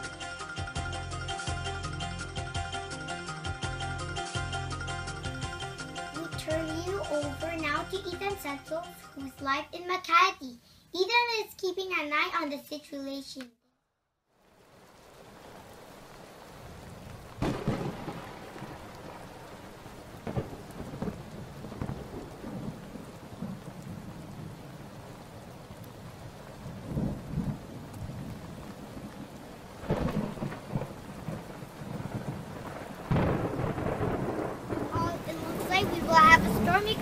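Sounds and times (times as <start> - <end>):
heavy rain: 5.1 - 10.0, 14.3 - 37.0
wind: 14.3 - 37.0.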